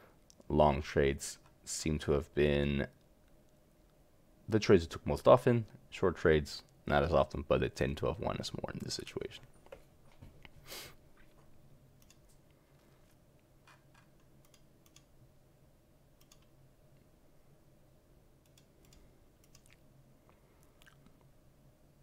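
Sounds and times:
low steady hum: 0.0 - 22.0
computer mouse clicks: 12.0 - 12.4, 14.2 - 15.1, 16.2 - 16.5, 18.4 - 19.8.

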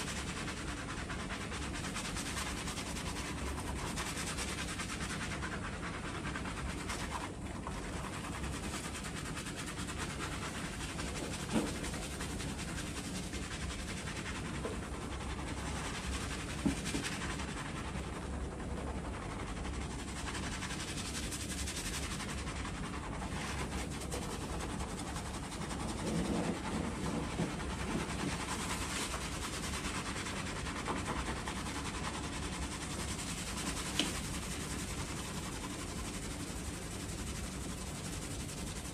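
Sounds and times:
hands scrubbing shampoo lather: 0.0 - 38.9.

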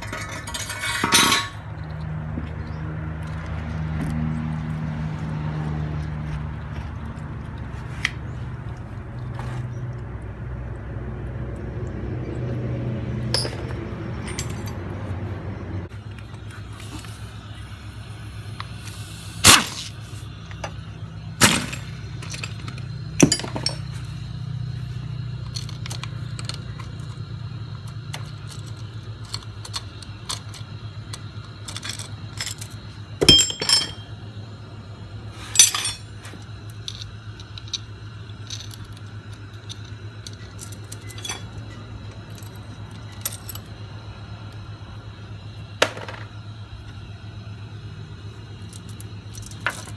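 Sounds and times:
metal clinking: 0.0 - 1.6, 13.3 - 14.9, 21.4 - 24.1, 28.2 - 34.2, 35.5 - 36.2, 36.8 - 43.7.

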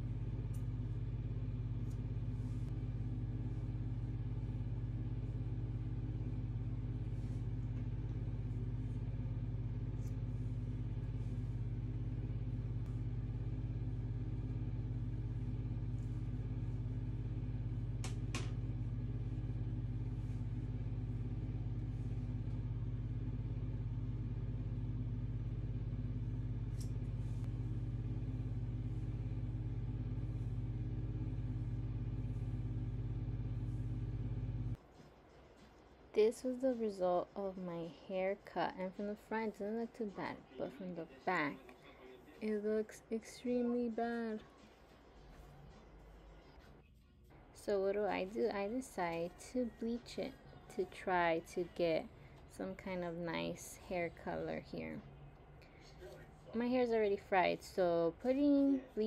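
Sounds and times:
steady low hum: 0.0 - 34.8.

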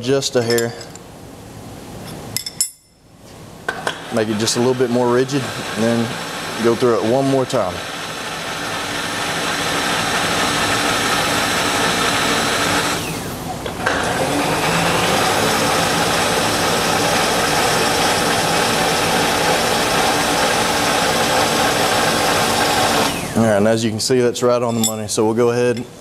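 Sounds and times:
machine table power feed running: 3.8 - 23.6.

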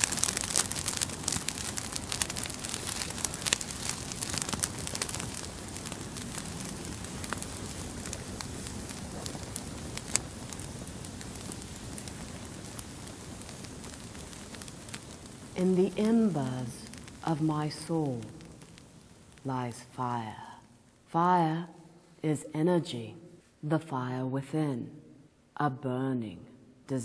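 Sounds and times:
fire crackling and popping: 0.0 - 21.1
steady hiss: 0.0 - 22.3.

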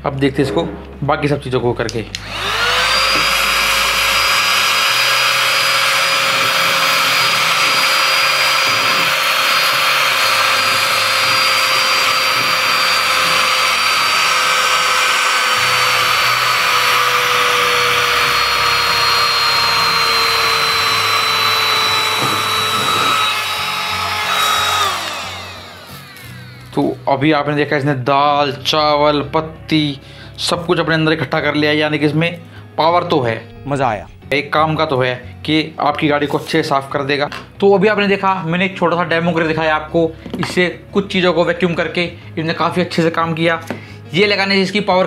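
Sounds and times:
handheld vacuum cleaner whine: 2.2 - 26.8.

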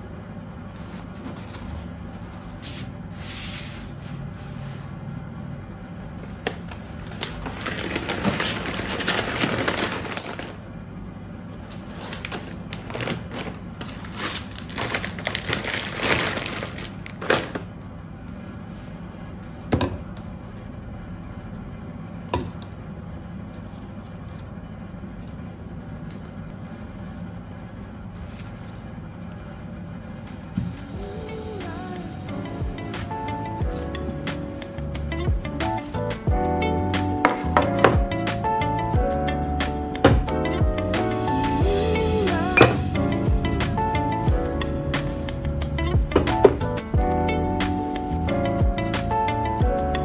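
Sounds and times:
plastic packets crinkling: 7.0 - 10.6, 11.8 - 17.7.

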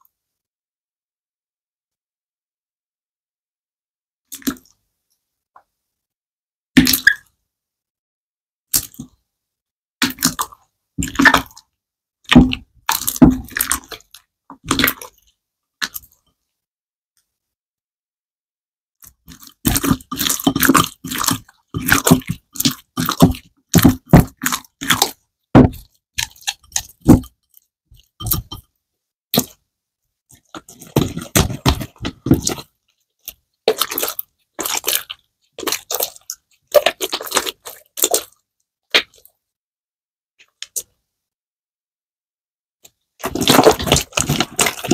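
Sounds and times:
slime squishing: 10.0 - 16.2, 19.0 - 28.7, 29.4 - 29.6, 30.3 - 39.3, 43.2 - 44.9.

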